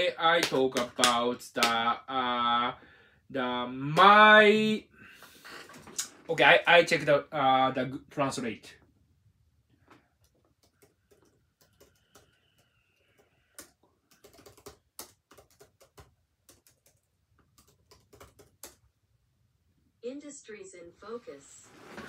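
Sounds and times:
typing on computer keyboard: 0:10.2 - 0:18.8.

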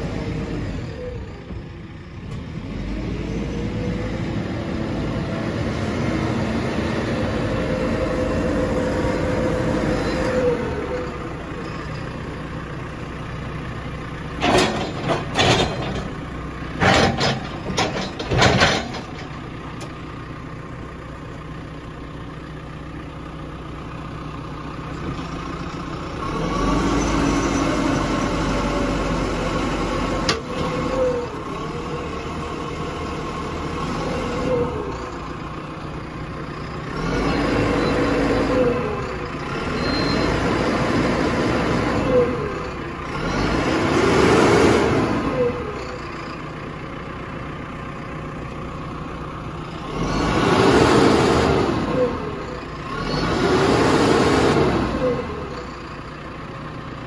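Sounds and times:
diesel engine running: 0:00.0 - 0:57.0
metallic knocks and clanks: 0:14.4 - 0:19.4.

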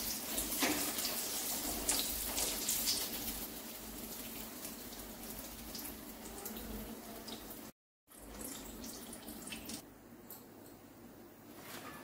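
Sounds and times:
fritters sizzling in hot oil: 0:00.0 - 0:09.8.

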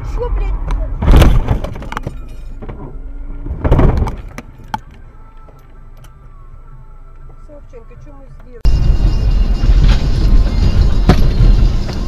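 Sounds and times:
car crash impact with breaking: 0:03.5 - 0:04.3.

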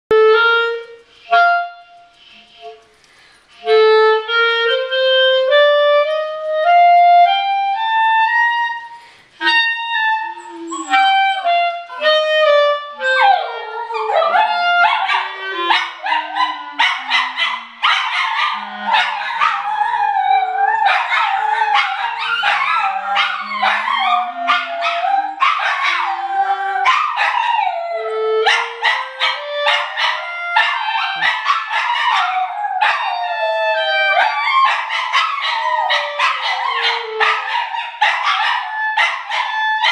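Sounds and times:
clarinet playing held notes: 0:00.1 - 0:17.2, 0:18.6 - 0:31.3, 0:32.3 - 0:34.8, 0:35.5 - 0:37.8
dogs howling and yipping: 0:13.0 - 0:39.9.

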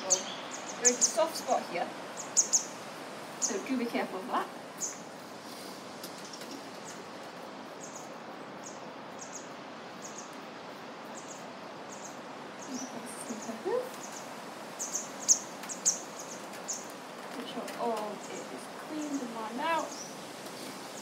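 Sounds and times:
small bird chirping: 0:00.0 - 0:04.0, 0:04.7 - 0:05.1, 0:07.7 - 0:16.9
background hiss: 0:00.0 - 0:21.0.

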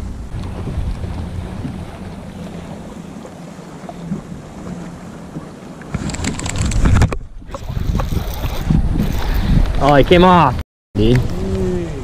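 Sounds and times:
rumble: 0:00.0 - 0:02.7
water lapping against boat: 0:00.0 - 0:12.0
wind buffeting microphone: 0:00.0 - 0:12.0.

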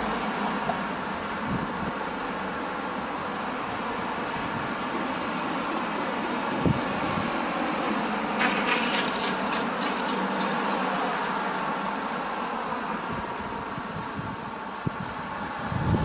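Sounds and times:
outdoor background noise: 0:00.0 - 0:16.0
sharp high clicking and rattling: 0:08.3 - 0:12.7.

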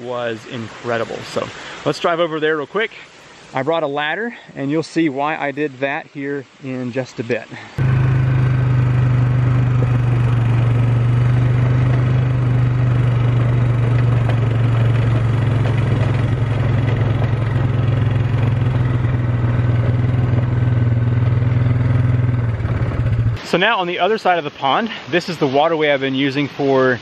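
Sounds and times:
atv engine drone: 0:07.8 - 0:23.4.

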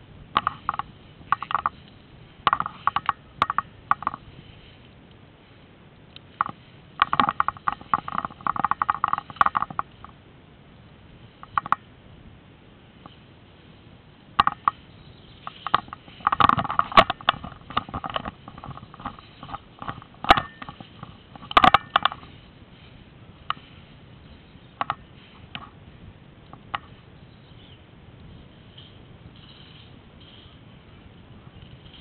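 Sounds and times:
rustling through tall grass: 0:00.0 - 0:32.0
gear clicking and knocking: 0:00.4 - 0:01.9, 0:02.5 - 0:04.2, 0:06.4 - 0:10.1, 0:15.4 - 0:22.5.

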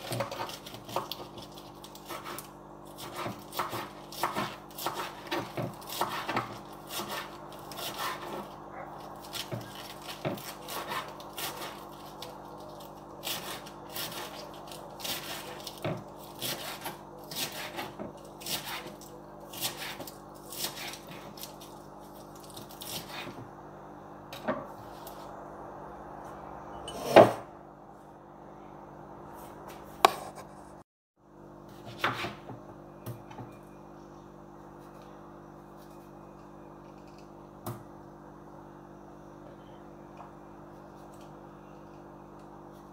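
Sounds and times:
steady low hum: 0:00.0 - 0:42.9
knife chopping on wooden board: 0:03.0 - 0:08.4, 0:31.8 - 0:33.2.

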